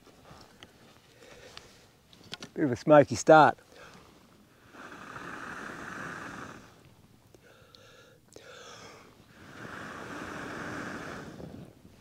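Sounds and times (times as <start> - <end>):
person blowing on campfire embers: 3.8 - 11.8.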